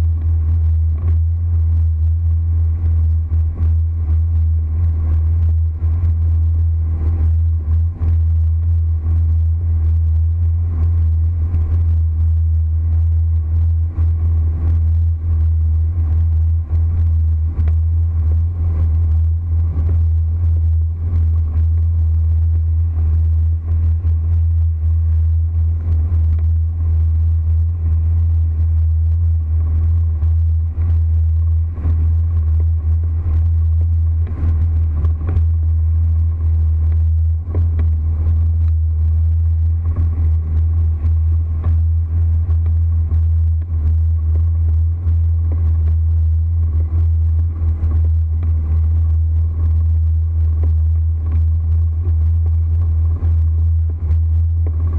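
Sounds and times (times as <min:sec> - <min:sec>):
motorboat engine drone: 0:00.0 - 0:54.9.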